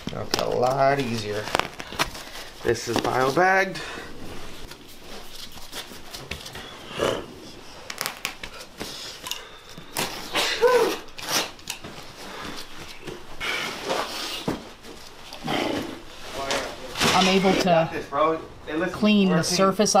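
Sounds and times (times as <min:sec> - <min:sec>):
person grunting: 0:10.4 - 0:11.0.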